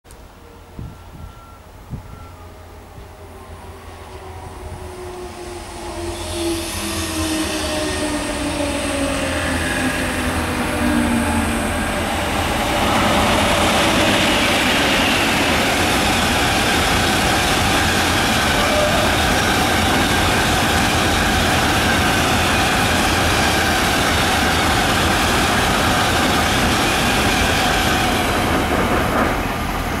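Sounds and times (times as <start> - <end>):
freight train wheels rumbling on rails: 0.9 - 30.0.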